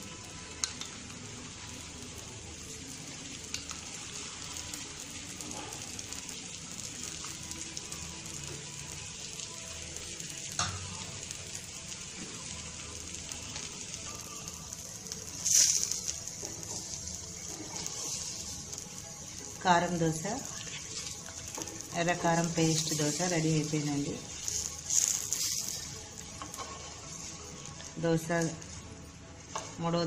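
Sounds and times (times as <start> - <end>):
dosa sizzling in oil: 0.0 - 30.0
utensil clicking on pan: 0.6 - 0.9.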